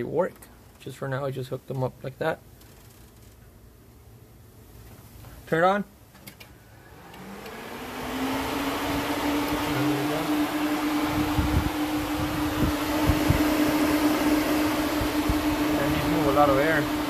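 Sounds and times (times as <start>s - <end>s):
electric cooling fan running: 6.5s - 17.0s.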